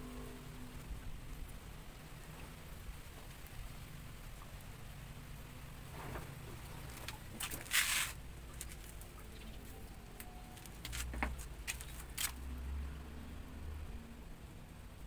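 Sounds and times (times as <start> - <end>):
wires scratchy rustle: 5.4 - 12.5.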